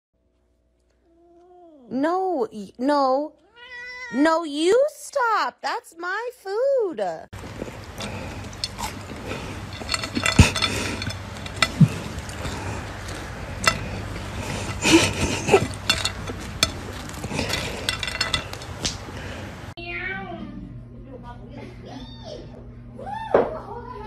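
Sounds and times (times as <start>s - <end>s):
sharp clicks and knocks: 7.4s - 19.2s
scuffling and rustling: 7.4s - 19.7s.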